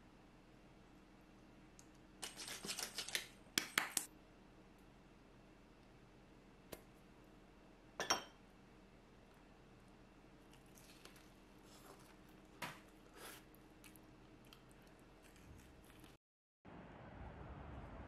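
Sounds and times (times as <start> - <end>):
faint room hum: 0.0 - 18.0
tableware clacking on ceramic tray: 8.0 - 8.4.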